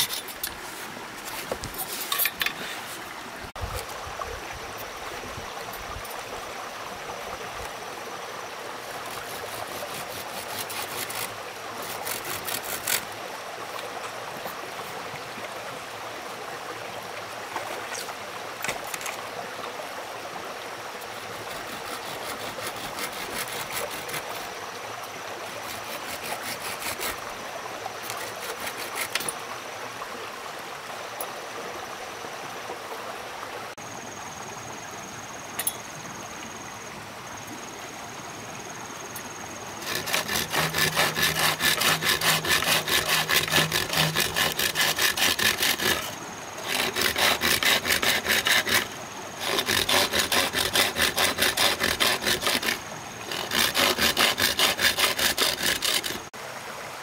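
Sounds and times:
hand tool scraping: 0.0s - 3.1s, 8.8s - 13.2s, 21.0s - 24.5s, 25.6s - 27.3s, 28.0s - 29.4s, 39.8s - 56.3s.

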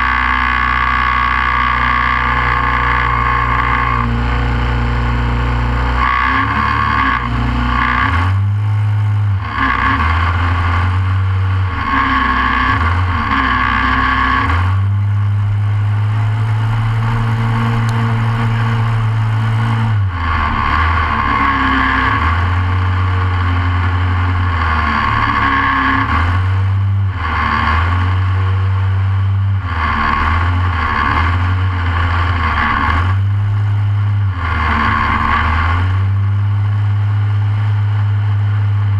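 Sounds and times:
kart engine revving: 0.0s - 38.9s.

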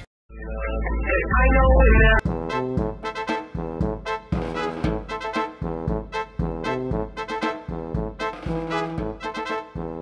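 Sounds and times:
brass music playing short notes: 2.2s - 10.0s.

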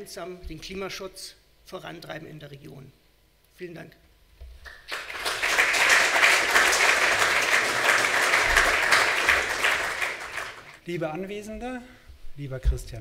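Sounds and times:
audience applauding: 4.7s - 10.8s.

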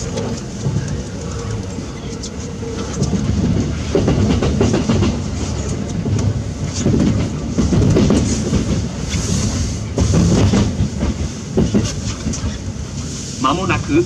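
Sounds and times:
wheels clicking over rail joints: 0.0s - 9.3s
wheel-on-rail rumble: 0.0s - 14.0s.

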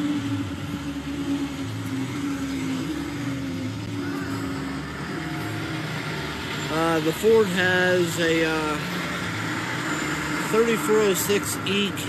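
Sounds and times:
diesel truck engine idling: 0.0s - 12.0s
outdoor background noise: 0.0s - 12.0s.

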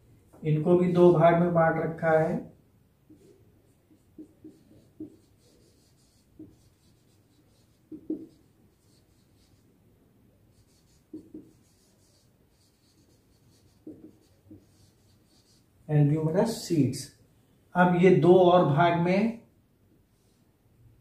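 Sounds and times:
marker squeaking on whiteboard: 3.1s - 9.7s, 10.5s - 15.7s.

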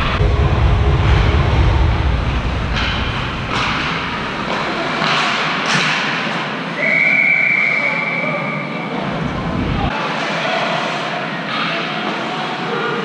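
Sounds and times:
thuds: 0.0s - 6.1s
low rink rumble: 0.0s - 6.8s.

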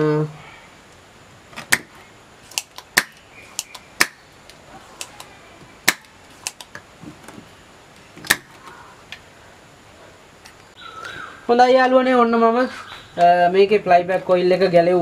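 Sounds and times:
desoldering pump clicking: 1.6s - 6.9s.

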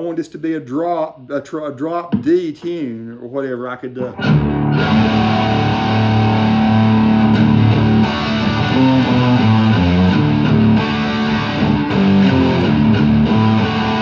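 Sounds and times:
electric guitar riff: 4.0s - 14.0s.

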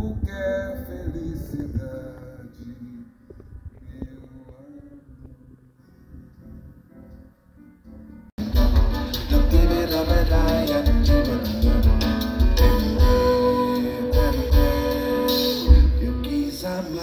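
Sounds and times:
live bossa nova band: 8.4s - 17.0s.

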